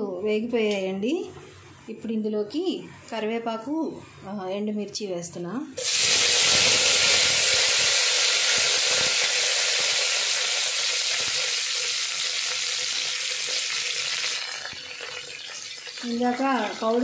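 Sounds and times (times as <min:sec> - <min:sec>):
spices sizzling in hot oil: 0:05.8 - 0:17.0.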